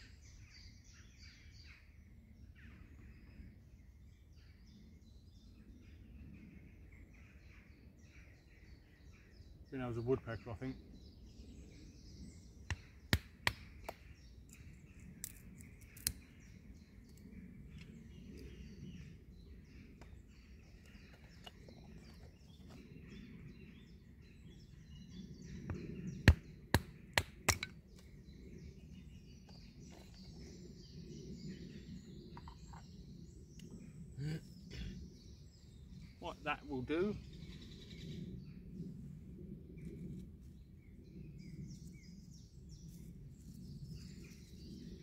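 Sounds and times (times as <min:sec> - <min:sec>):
woodland birds chirping: 0:00.0 - 0:45.0
sharp knocks and snaps: 0:12.7 - 0:14.6, 0:15.2 - 0:16.3.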